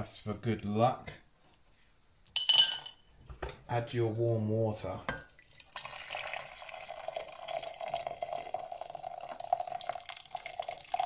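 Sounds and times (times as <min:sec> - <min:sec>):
water pouring into container: 0:05.3 - 0:11.0.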